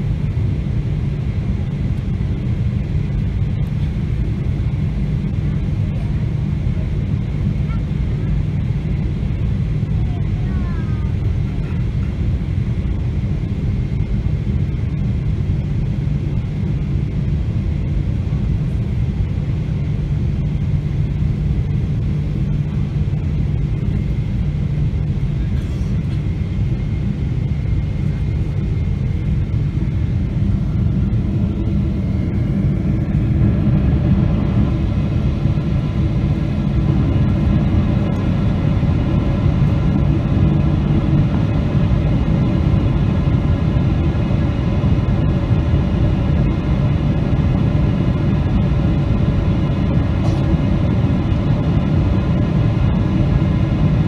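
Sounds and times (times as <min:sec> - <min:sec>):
aircraft cabin rumble: 0:00.0 - 0:54.0.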